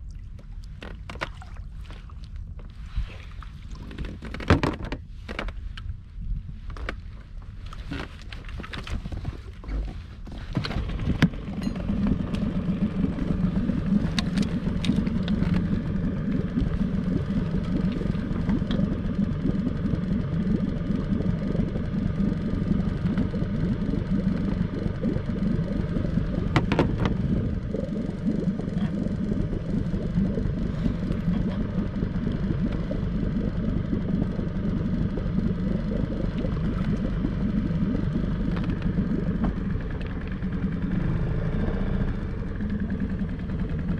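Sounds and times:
small outboard motor running: 0:08.9 - 0:43.9.

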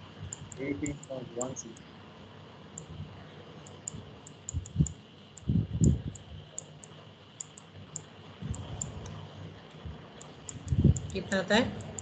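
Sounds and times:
light rapid clicking: 0:00.2 - 0:01.9, 0:03.6 - 0:12.0
dull low thumps: 0:04.5 - 0:06.4, 0:10.6 - 0:11.2.

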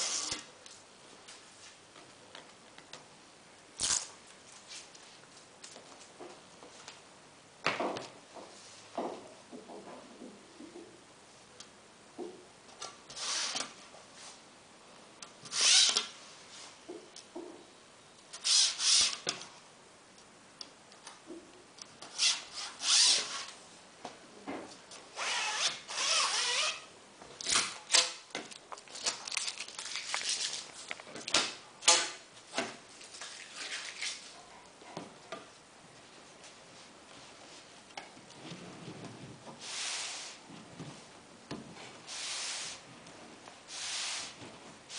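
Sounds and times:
roller blind fabric rustling: 0:36.0 - 0:44.9.

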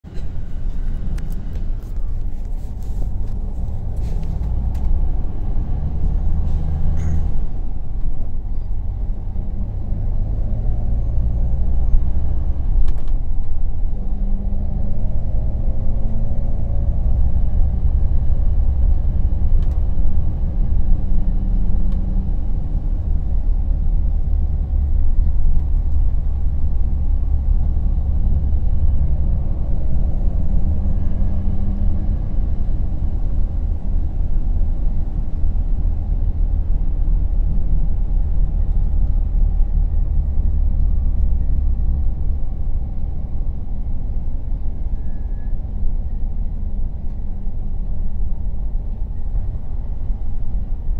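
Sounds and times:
diesel engine rumble: 0:00.0 - 0:50.9.

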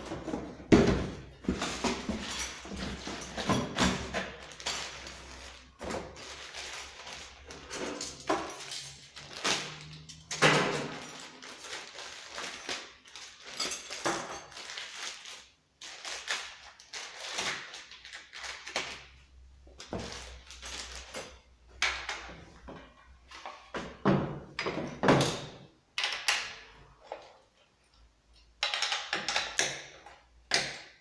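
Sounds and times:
plastic bag rustling: 0:00.0 - 0:19.2, 0:19.8 - 0:21.2.

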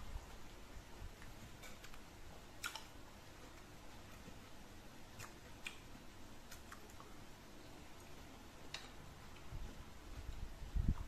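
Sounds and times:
low room hiss: 0:00.0 - 0:11.0
chewing clicks: 0:02.6 - 0:03.0, 0:05.2 - 0:05.8.

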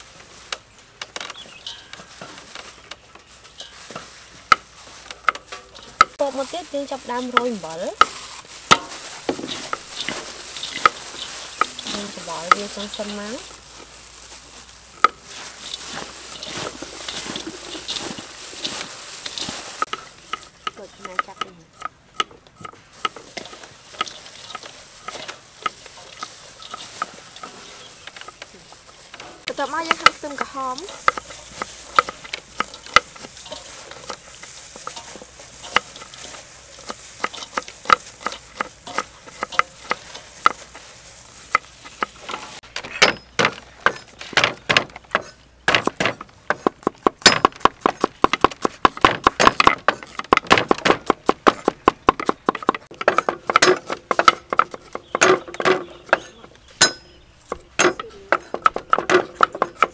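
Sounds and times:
gloved hands mixing shredded papaya: 0:00.0 - 0:00.8, 0:01.4 - 0:42.8.

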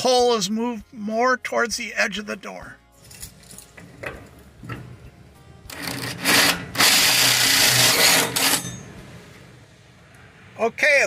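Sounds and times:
power drill boring through metal: 0:05.7 - 0:08.8.

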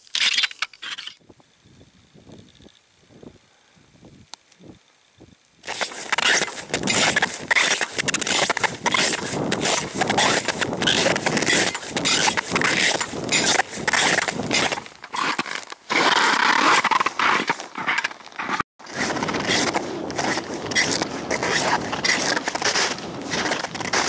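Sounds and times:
boots crunching through snow: 0:05.6 - 0:24.0.

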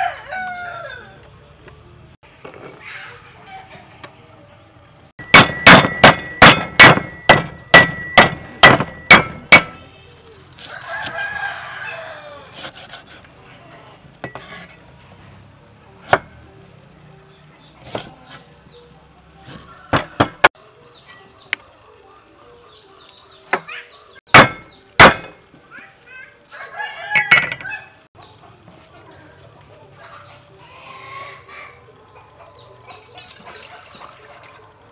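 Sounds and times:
rooster crowing: 0:00.0 - 0:01.2, 0:10.7 - 0:12.6, 0:19.5 - 0:20.5, 0:26.5 - 0:28.0
cleaver chopping on wooden block: 0:05.3 - 0:09.8, 0:19.5 - 0:20.5, 0:24.3 - 0:25.4.

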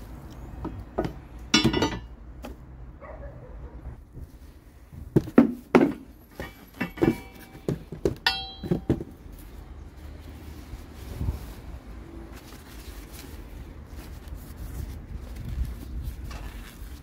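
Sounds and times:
metal engine guard knocking: 0:01.0 - 0:02.1, 0:05.8 - 0:09.1.

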